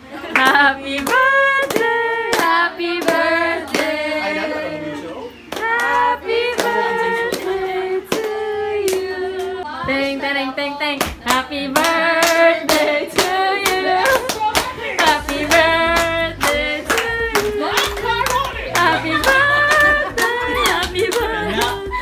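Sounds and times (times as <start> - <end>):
hand claps: 0.4 - 3.9, 11.0 - 21.8
person singing: 5.6 - 22.0.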